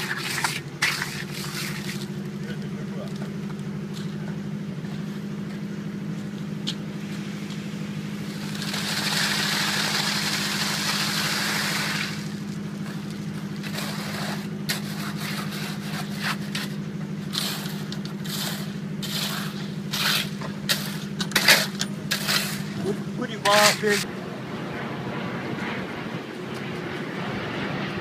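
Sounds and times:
engine running steadily: 0:00.0 - 0:28.0
rushing hiss: 0:08.4 - 0:12.4.

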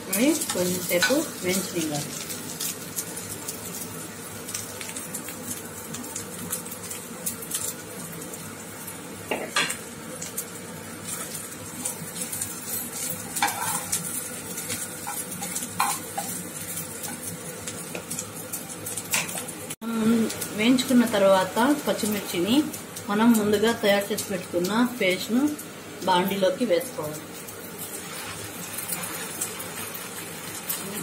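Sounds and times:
chillies sizzling in a pan: 0:00.0 - 0:31.0
metal spatula scraping a pan: 0:13.3 - 0:14.0.

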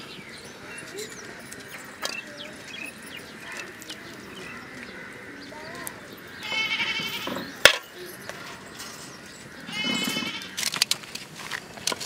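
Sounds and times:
farm animal bleating: 0:06.4 - 0:07.6, 0:09.5 - 0:10.6.

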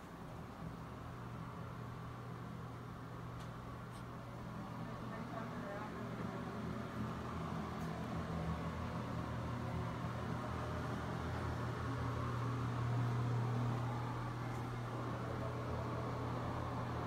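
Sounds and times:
fan humming: 0:00.0 - 0:17.0.

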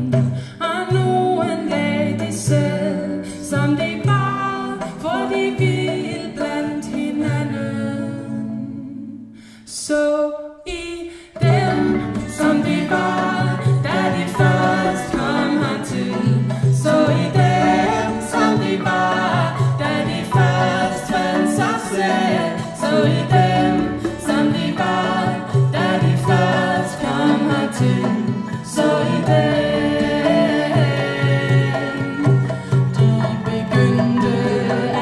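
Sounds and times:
acoustic band playing: 0:00.0 - 0:09.0, 0:11.2 - 0:35.0
voices singing together: 0:01.0 - 0:09.3, 0:11.4 - 0:35.0
hand drum strokes: 0:11.4 - 0:35.0.

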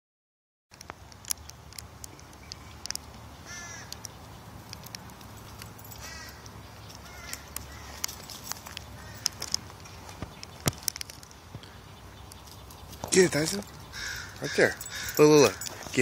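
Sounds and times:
light clicks: 0:00.8 - 0:03.2
bird cawing: 0:03.4 - 0:04.1, 0:05.9 - 0:09.6, 0:13.7 - 0:16.0.

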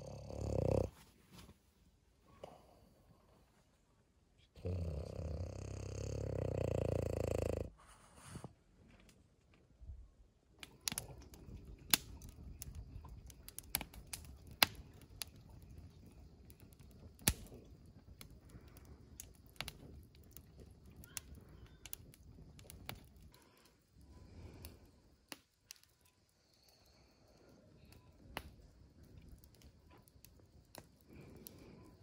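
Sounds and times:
campfire crackling: 0:00.0 - 0:01.1, 0:10.5 - 0:32.0
low rush of flames: 0:10.6 - 0:32.0.

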